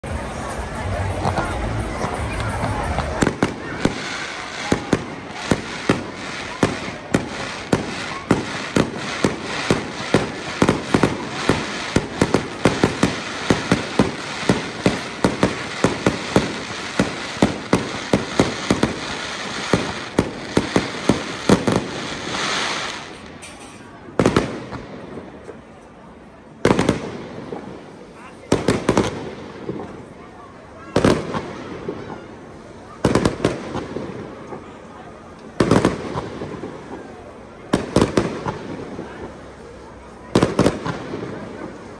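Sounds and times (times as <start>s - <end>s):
fireworks hissing: 0.1s - 25.7s
fireworks bangs: 0.1s - 25.8s, 26.5s - 41.9s.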